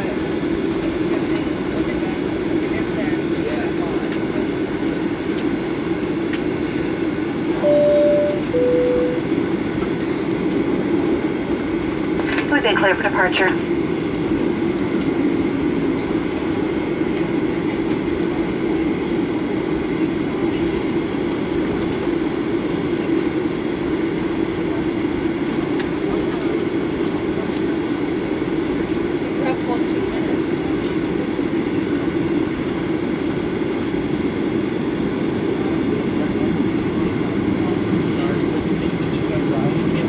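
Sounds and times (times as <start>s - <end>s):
low rumble inside aircraft cabin: 0.0s - 40.0s
jet engines humming: 0.1s - 29.5s.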